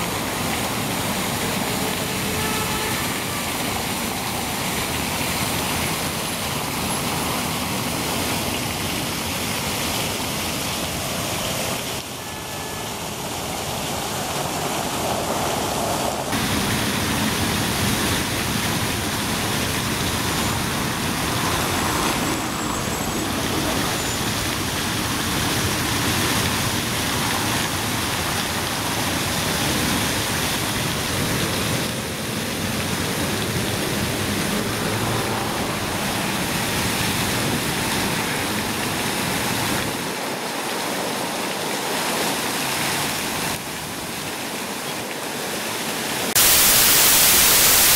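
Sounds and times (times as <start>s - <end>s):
fountain water splashing: 0.0s - 47.9s
cars passing: 10.9s - 40.0s.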